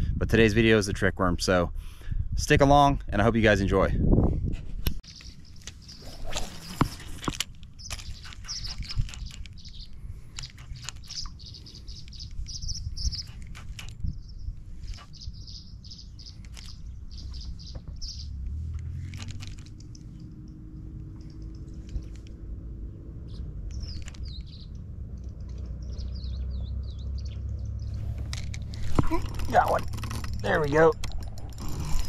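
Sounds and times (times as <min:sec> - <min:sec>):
small birds chirping: 0:05.0 - 0:31.1
fishing line running off spool: 0:05.6 - 0:09.6
fishing rod cast swish: 0:06.0 - 0:07.3.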